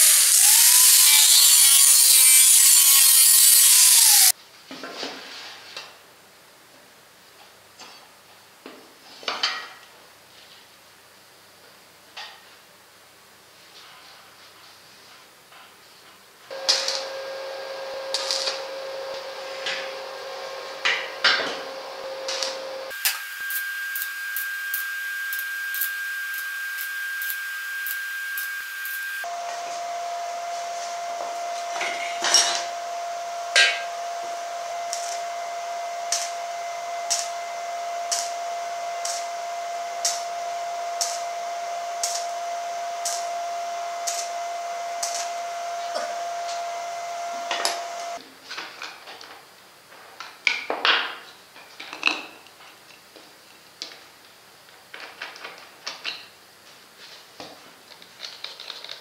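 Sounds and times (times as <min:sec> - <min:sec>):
welding arc crackling: 0:00.0 - 0:04.3, 0:16.5 - 0:48.2
welding machine whine: 0:00.0 - 0:04.3, 0:16.5 - 0:48.2.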